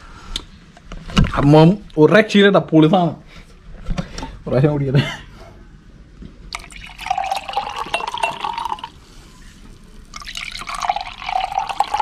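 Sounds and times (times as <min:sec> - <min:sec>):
liquid pouring into glass: 0:06.5 - 0:09.0, 0:09.7 - 0:12.0.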